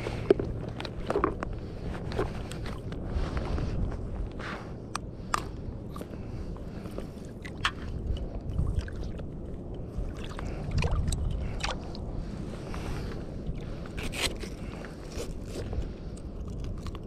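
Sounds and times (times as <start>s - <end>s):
wind on microphone: 0.0s - 17.0s
water sloshing: 6.7s - 14.1s.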